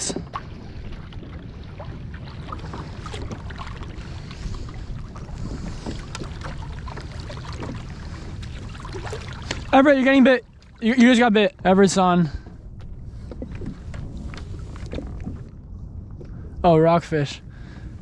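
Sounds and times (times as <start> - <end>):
water lapping around kayak: 0.0 - 18.0
wind rumble on microphone: 0.0 - 18.0
small splashes and drips: 0.1 - 4.9, 5.7 - 9.8, 10.4 - 10.8.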